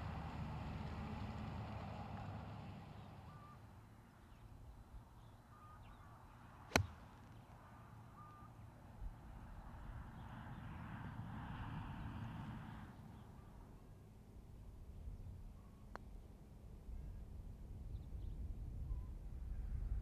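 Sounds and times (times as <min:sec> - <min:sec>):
low outdoor rumble: 0:00.0 - 0:20.0
golf club striking ball: 0:06.7 - 0:07.1.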